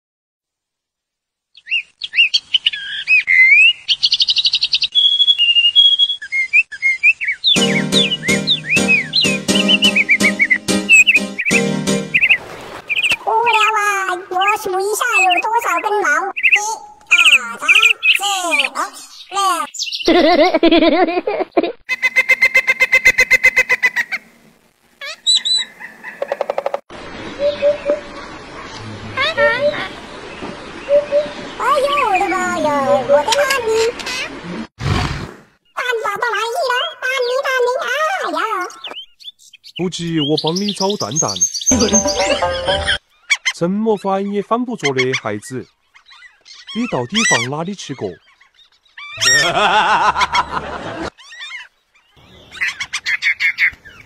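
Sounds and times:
whistled chirps and trills: 0:04.7 - 0:13.2, 0:27.4 - 0:28.1
bird-like warbling calls: 0:07.5 - 0:19.0, 0:25.0 - 0:34.6, 0:41.7 - 0:43.6.

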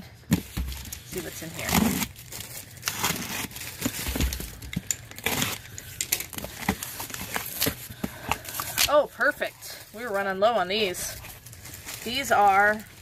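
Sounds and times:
box cutter slitting packing tape: 0:01.6 - 0:02.2, 0:02.8 - 0:04.1.

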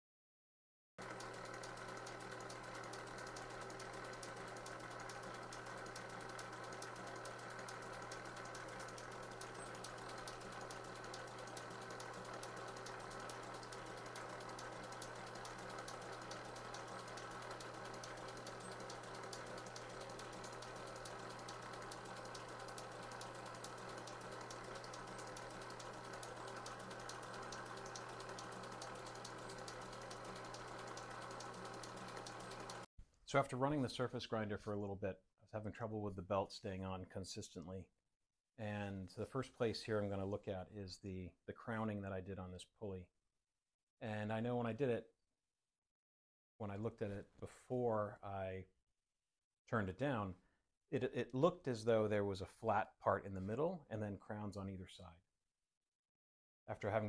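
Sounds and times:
fast even ticking: 0:01.0 - 0:32.9
grinder motor and pulleys humming: 0:01.0 - 0:32.9.

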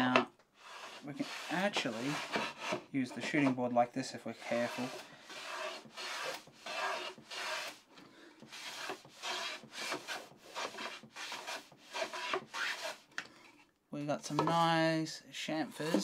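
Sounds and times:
hand plane scraping wood: 0:00.0 - 0:03.6, 0:04.4 - 0:13.0.

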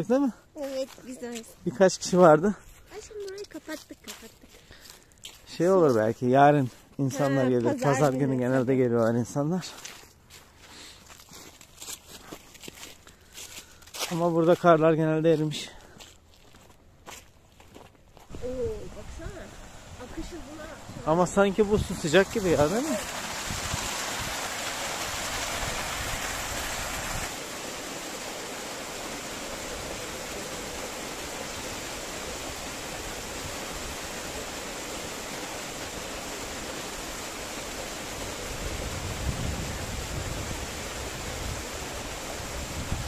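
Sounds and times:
river water flowing: 0:18.3 - 0:43.0.

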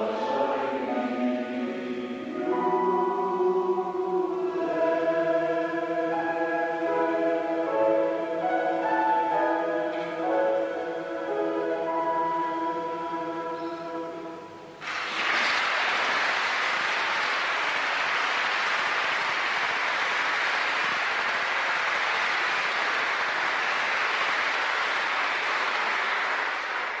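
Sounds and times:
choir final chord: 0:00.0 - 0:14.8
audience applauding: 0:14.8 - 0:27.0.

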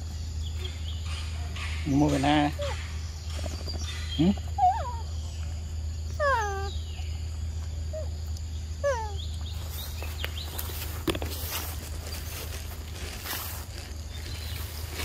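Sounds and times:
steady low hum: 0:00.0 - 0:15.0
macaque calls: 0:00.6 - 0:03.0, 0:03.8 - 0:05.1, 0:06.1 - 0:06.8, 0:08.8 - 0:09.2.

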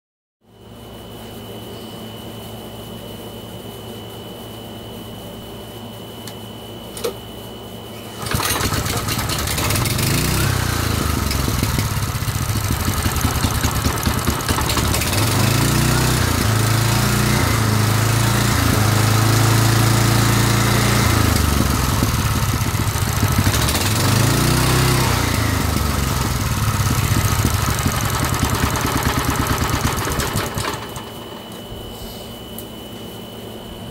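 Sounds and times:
small engine running and revving: 0:08.2 - 0:31.0.

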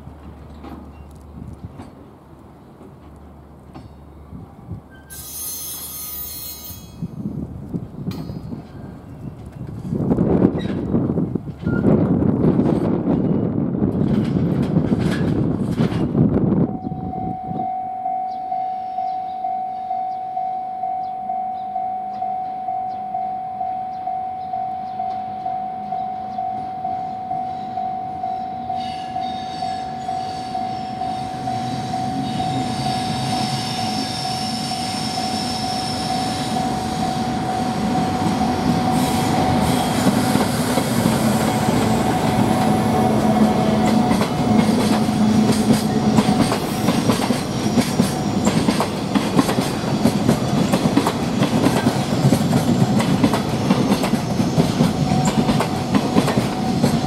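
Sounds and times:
freight train rumbling past: 0:00.0 - 0:17.7, 0:24.7 - 0:57.0
locomotive rumble and wheel noise: 0:00.0 - 0:17.9, 0:24.4 - 0:57.0
level crossing warning bell: 0:16.7 - 0:32.5.

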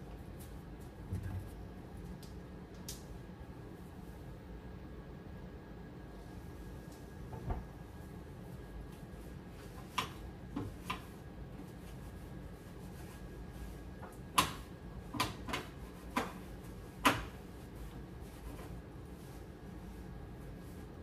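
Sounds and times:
stovetop being wiped: 0:07.9 - 0:21.0.

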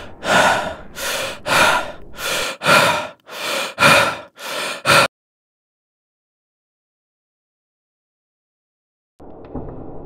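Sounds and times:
man breathing heavily: 0:00.0 - 0:05.1.

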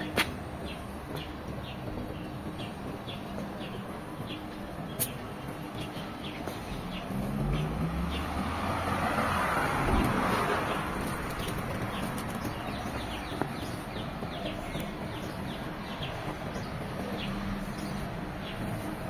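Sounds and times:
small birds chirping: 0:00.0 - 0:19.0
car passing: 0:06.5 - 0:19.0.

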